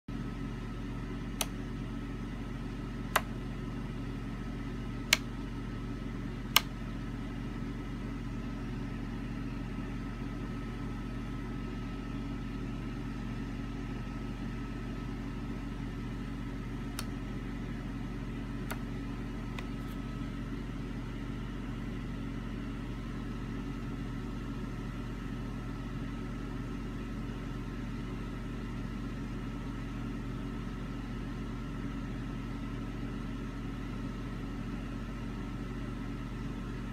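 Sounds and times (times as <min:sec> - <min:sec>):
low mechanical hum: 0:00.1 - 0:36.9
sharp clicks: 0:03.1 - 0:03.4, 0:06.5 - 0:06.8.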